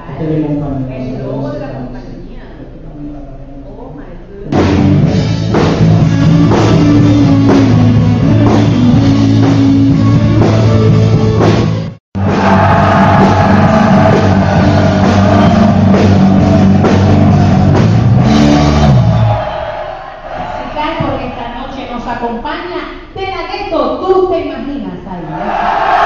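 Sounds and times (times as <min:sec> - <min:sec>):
loud music with drum beat: 0:04.5 - 0:19.7.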